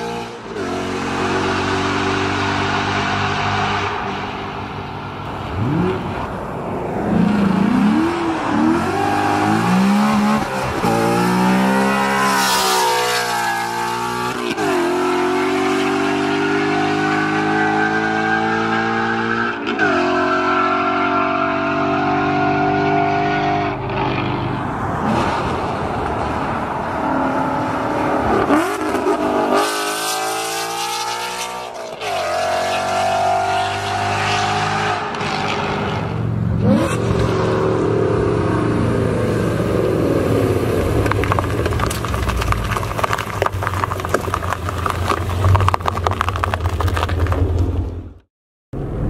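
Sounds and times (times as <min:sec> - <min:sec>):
exhaust crackling: 0:36.1 - 0:48.2.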